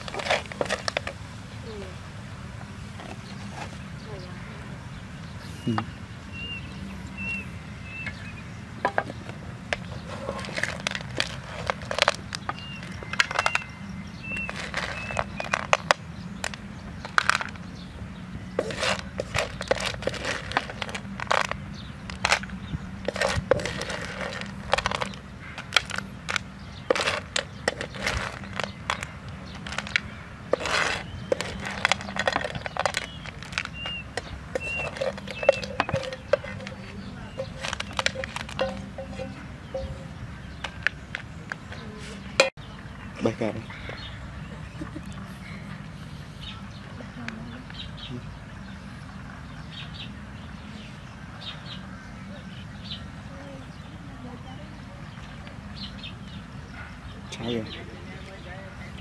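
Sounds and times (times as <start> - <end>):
snails clattering in a frying pan: 0.0 - 1.2, 9.7 - 17.7, 18.6 - 40.0
spatula scraping a pan: 18.6 - 21.5, 29.7 - 34.0.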